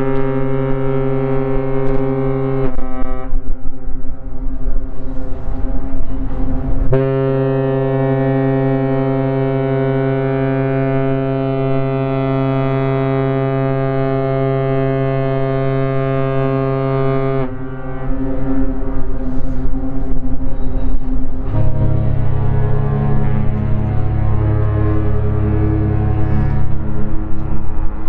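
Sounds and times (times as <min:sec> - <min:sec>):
ship horn blast: 0:00.0 - 0:03.9, 0:06.1 - 0:28.0
loud rushing noise: 0:17.4 - 0:28.0.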